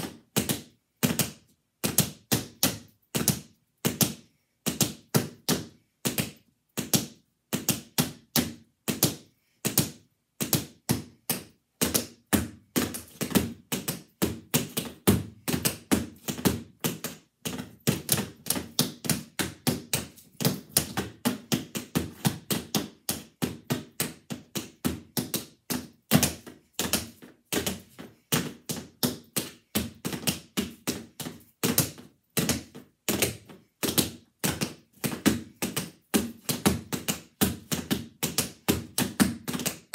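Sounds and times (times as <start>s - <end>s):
tap shoes clicking on board: 0.1s - 39.9s.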